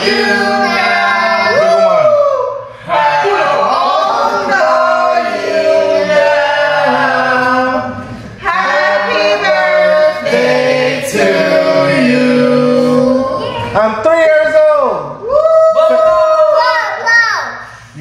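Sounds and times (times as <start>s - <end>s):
group singing unaccompanied: 0.0s - 13.8s.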